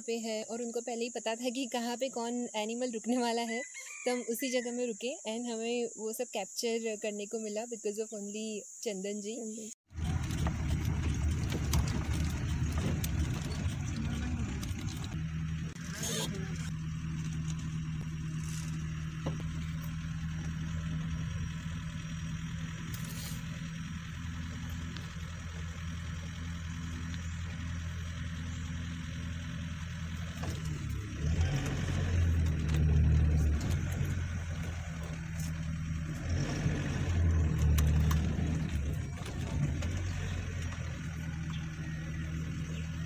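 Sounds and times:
vehicle engine humming and revving: 9.9s - 43.0s.

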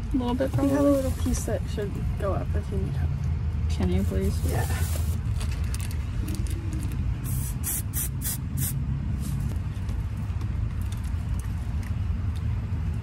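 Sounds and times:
brief hissing rustles: 4.5s - 5.2s.

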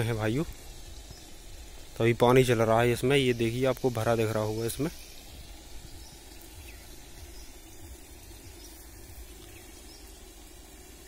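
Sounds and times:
bird chirps: 4.7s - 10.2s.

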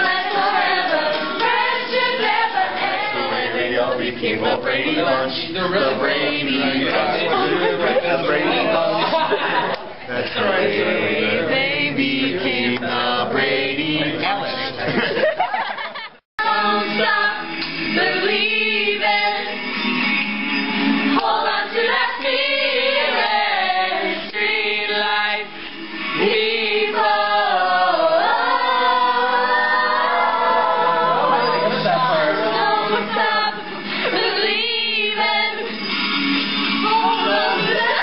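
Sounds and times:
voices singing together: 0.0s - 15.5s, 16.4s - 38.0s
people talking: 3.1s - 15.3s.

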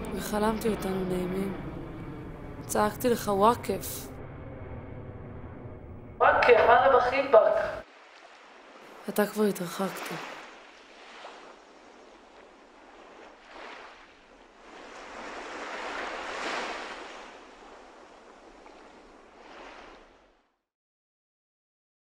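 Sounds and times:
sea waves washing in: 6.3s - 20.6s.

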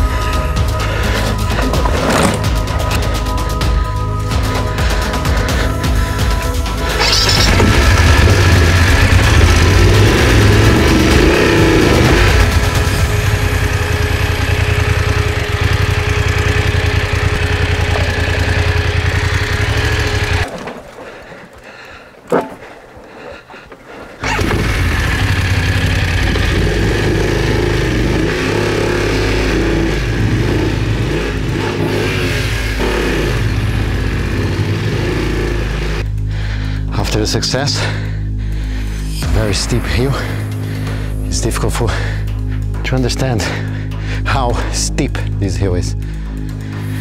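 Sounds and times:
motorcycle engine running: 0.0s - 20.5s, 24.2s - 36.3s, 45.3s - 47.0s.

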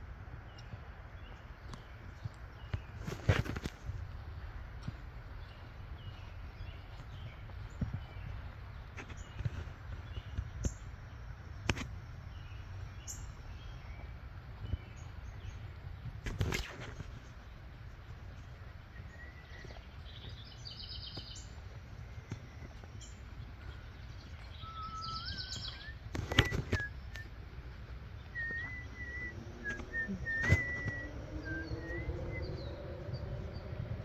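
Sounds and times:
birds chirping and singing: 12.3s - 34.0s
low rumble: 27.0s - 34.0s.

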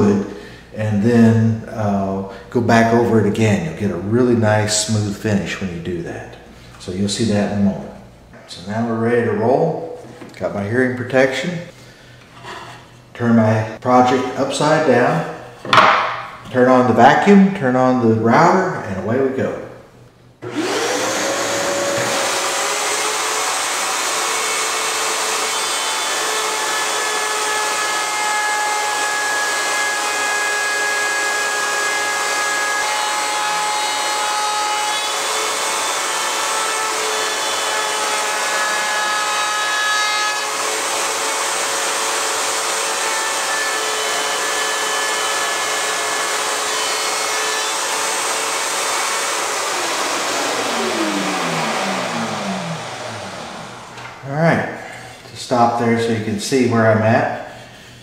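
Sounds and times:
router cutting wood: 20.4s - 54.3s
shop vacuum running: 20.4s - 56.1s.

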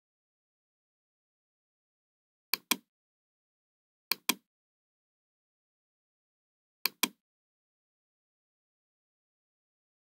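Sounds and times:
mouse button clicking: 2.6s - 2.9s, 4.1s - 4.4s, 6.9s - 7.2s.

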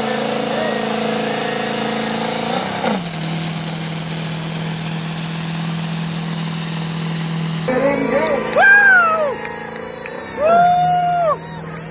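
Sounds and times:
diesel engine running hard: 0.0s - 11.9s
high whine: 3.1s - 11.9s.

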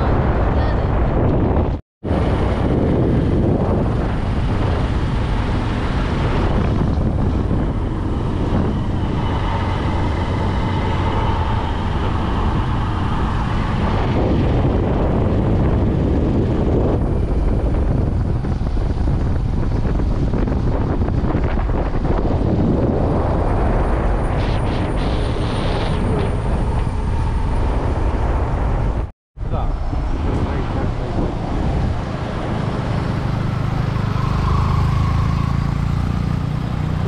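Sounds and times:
road noise rumble: 0.0s - 37.0s
wind buffeting microphone: 0.0s - 37.0s
motorcycle engine running: 2.2s - 23.2s, 30.1s - 37.0s.

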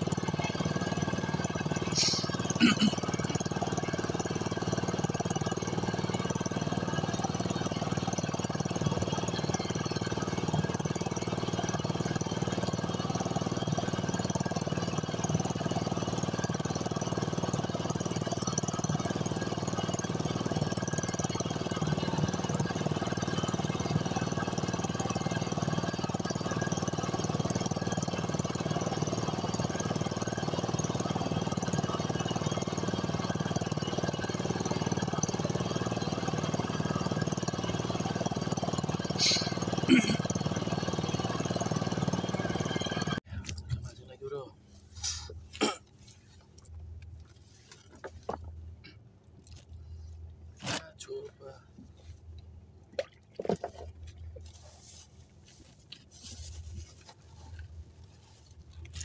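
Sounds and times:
boat engine running: 0.0s - 59.0s
water noise: 51.2s - 55.0s.

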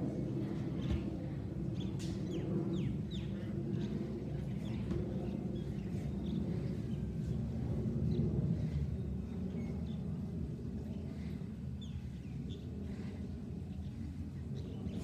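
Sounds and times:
jet engines rumbling overhead: 0.0s - 15.0s.

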